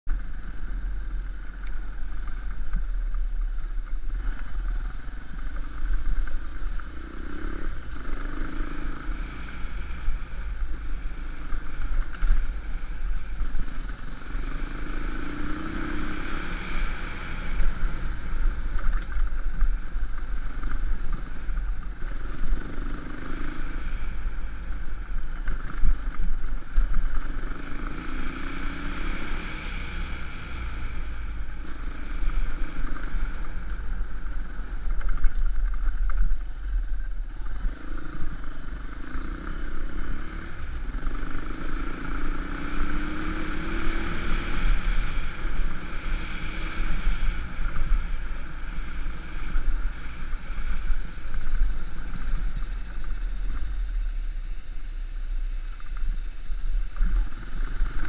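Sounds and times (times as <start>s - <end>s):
dirt bike engine revving: 4.1s - 19.4s, 37.5s - 52.9s.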